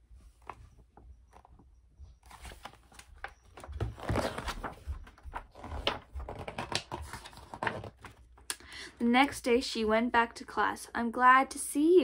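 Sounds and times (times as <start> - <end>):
book pages turning: 0.2 - 1.6, 2.2 - 8.5
paper rustling and crinkling: 0.2 - 1.6, 2.2 - 8.5.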